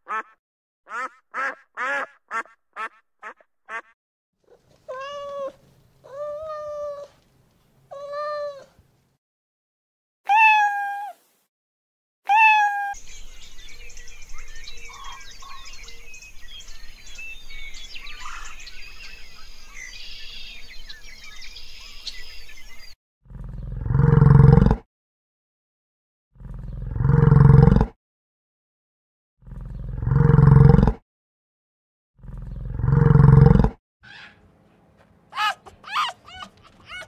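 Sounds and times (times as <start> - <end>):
cat meowing: 4.5 - 7.2, 7.9 - 8.8, 10.3 - 11.2, 12.3 - 13.0, 35.4 - 37.0.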